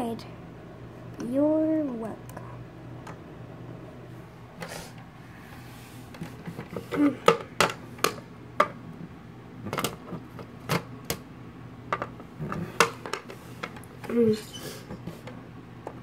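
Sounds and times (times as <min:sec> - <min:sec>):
plastic toys tapping on a desk: 0:07.2 - 0:08.8.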